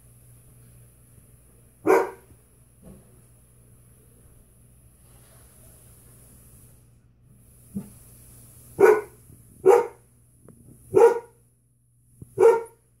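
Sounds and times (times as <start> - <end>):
dog barking deeply: 1.8 - 2.3, 8.8 - 10.0, 10.9 - 11.4, 12.4 - 12.8.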